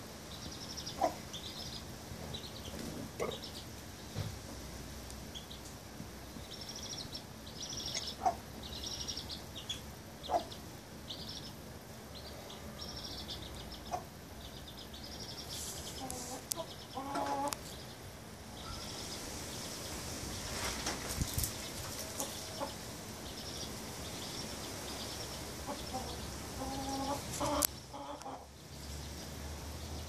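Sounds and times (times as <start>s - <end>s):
chicks peeping: 0.3s - 4.3s, 6.4s - 30.0s
hen clucking: 0.8s - 1.7s, 2.6s - 3.6s, 7.6s - 10.6s, 13.7s - 14.1s, 15.8s - 17.7s, 25.6s - 28.5s.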